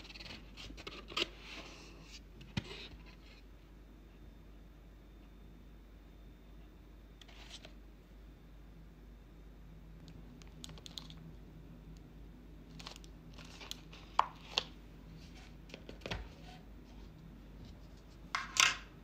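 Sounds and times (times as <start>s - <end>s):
plastic packaging crinkling: 10.0s - 11.3s, 12.7s - 14.8s.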